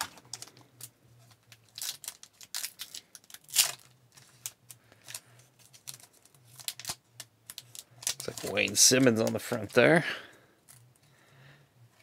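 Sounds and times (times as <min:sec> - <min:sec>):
foil wrapper crinkling: 0:01.4 - 0:10.0
foil wrapper tearing: 0:01.6 - 0:03.9, 0:05.1 - 0:09.9.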